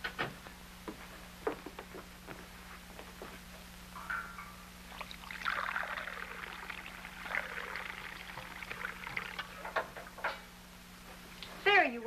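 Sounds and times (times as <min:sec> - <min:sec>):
water pouring into a glass: 0:04.9 - 0:09.8.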